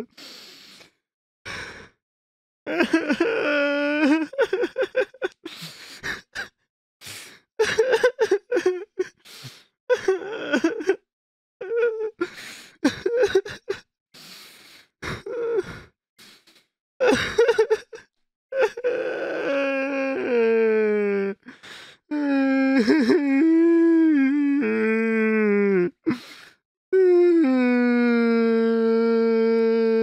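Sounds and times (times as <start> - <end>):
gasping in-breaths: 0.1 - 2.0, 5.4 - 7.5, 12.2 - 12.8, 14.2 - 17.3, 21.4 - 22.2, 25.9 - 26.6
person sobbing: 2.7 - 6.5, 7.6 - 9.2, 9.9 - 11.0, 11.6 - 13.8, 15.0 - 15.9, 17.0 - 26.4.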